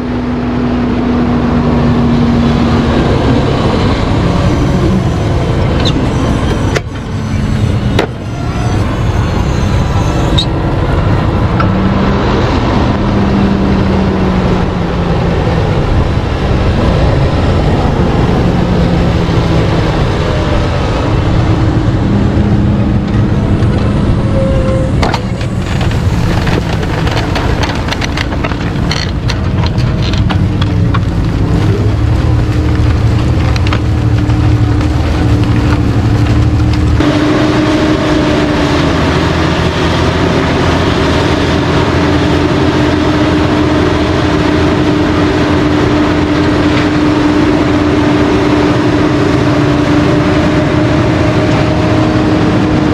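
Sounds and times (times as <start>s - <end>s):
rush of soil and tyres: 0.0s - 52.9s
tractor diesel engine under load: 0.0s - 52.9s
sharp clicks and knocks: 25.0s - 37.0s.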